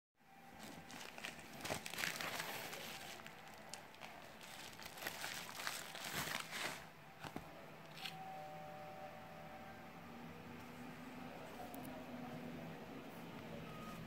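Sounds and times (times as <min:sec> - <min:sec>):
plastic envelope crinkling: 0:00.5 - 0:08.2.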